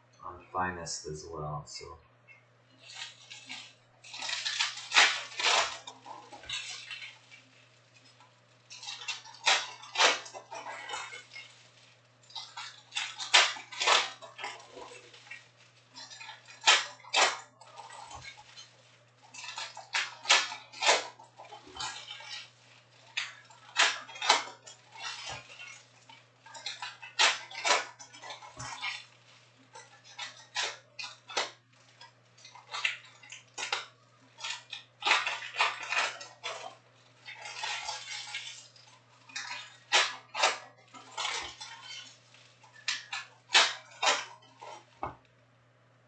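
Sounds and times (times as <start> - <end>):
faint low hum: 0.0 - 46.0
foil wrappers crinkling: 2.3 - 45.3
cards flipped and shuffled: 42.7 - 45.2.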